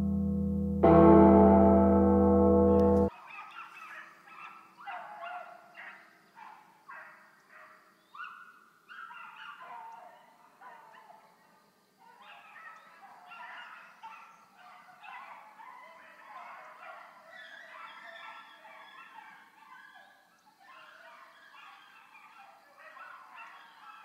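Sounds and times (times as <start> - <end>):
loud intro music: 0.0 - 3.1
dogs baying: 12.1 - 24.0.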